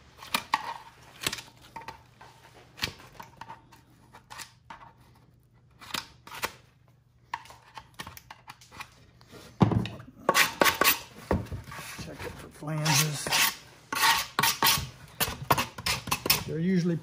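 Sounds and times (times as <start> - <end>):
scrapes and rustles: 11.1 - 14.8.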